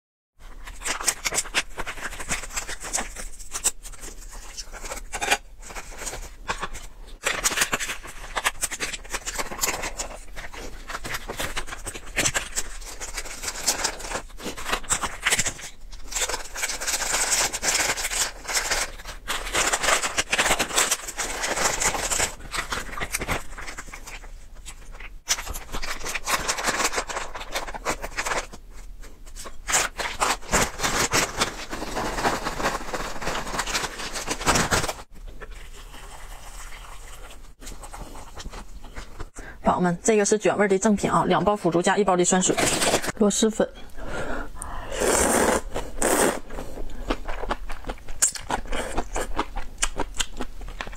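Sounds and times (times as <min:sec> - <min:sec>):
plastic packets crinkling: 0:00.4 - 0:35.9, 0:42.2 - 0:43.3.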